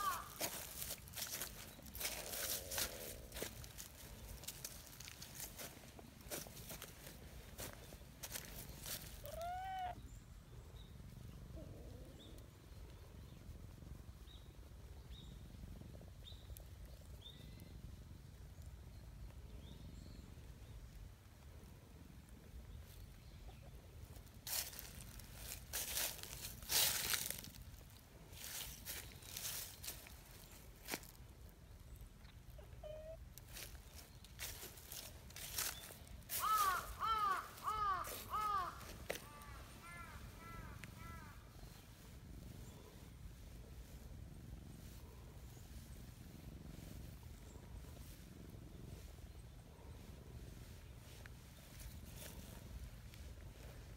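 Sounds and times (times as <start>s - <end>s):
crow cawing: 0.0s - 0.6s, 36.3s - 41.5s
small bird chirping: 0.0s - 21.1s, 28.4s - 53.9s
low outdoor rumble: 0.0s - 53.9s.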